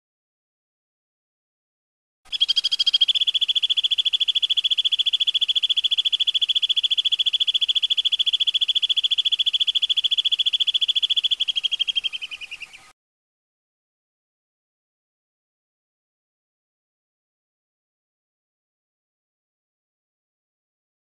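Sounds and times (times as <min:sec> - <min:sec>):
high rapid rolling bird trill: 0:02.3 - 0:12.9.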